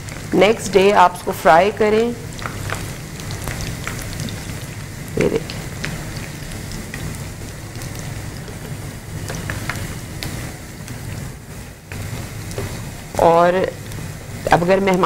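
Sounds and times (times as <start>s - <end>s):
food deep-frying in oil: 0.0s - 15.0s
small crackling pops: 2.3s - 11.3s.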